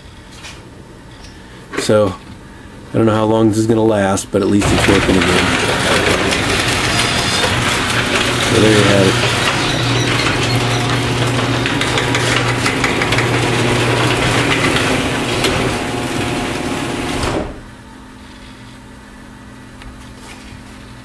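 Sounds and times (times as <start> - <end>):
garage door opener running: 4.5 - 17.8.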